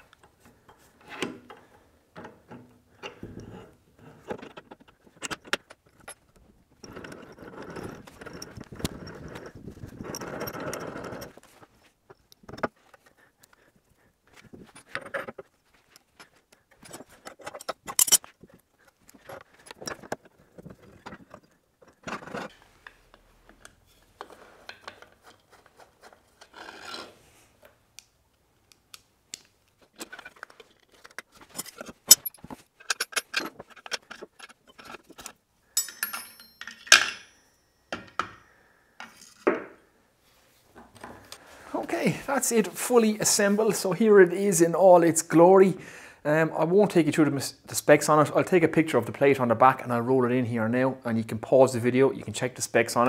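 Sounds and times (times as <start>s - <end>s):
metallic clinks and knocks: 4.4s - 13.6s, 14.4s - 22.5s, 30.0s - 39.6s.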